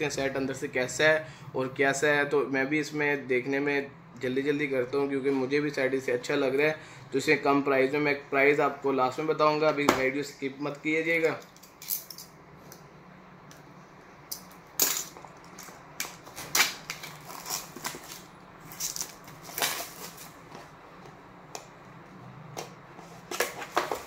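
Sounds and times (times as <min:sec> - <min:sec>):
plastic wrap crinkling and tearing: 0:15.7 - 0:20.4.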